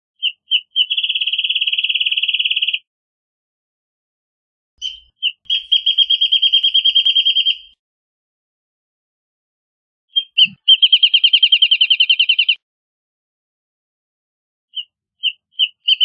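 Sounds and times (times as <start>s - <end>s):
bird singing: 0.2s - 2.9s, 4.8s - 7.8s, 10.1s - 12.6s, 14.7s - 16.0s.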